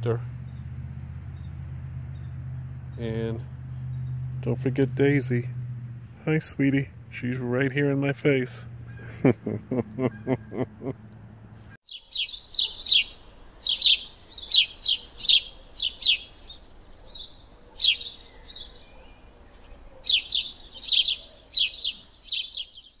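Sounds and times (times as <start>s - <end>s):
bird chirping: 1.3s - 4.8s, 11.8s - 23.0s.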